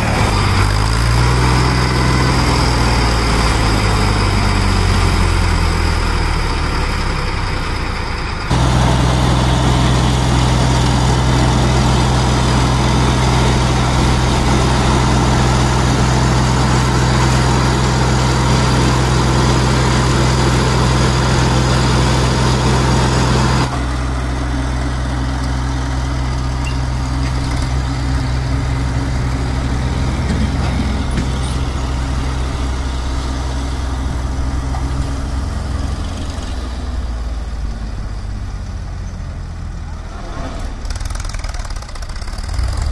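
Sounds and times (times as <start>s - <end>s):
diesel tractor engine running: 0.0s - 42.9s
trolley dumping mud: 8.5s - 24.1s, 26.2s - 36.9s.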